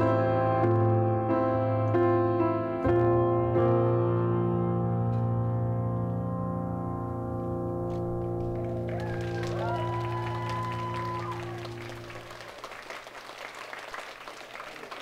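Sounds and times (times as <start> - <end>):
audience applause: 8.3 - 15.0.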